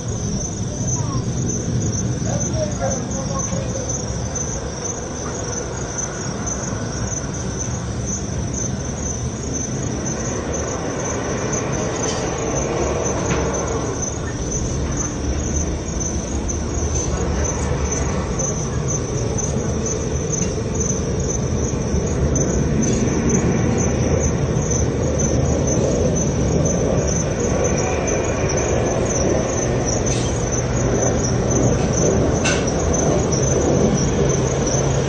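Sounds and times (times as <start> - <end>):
aircraft engines rumbling: 0.0 - 35.0
crickets chirping: 0.0 - 35.0.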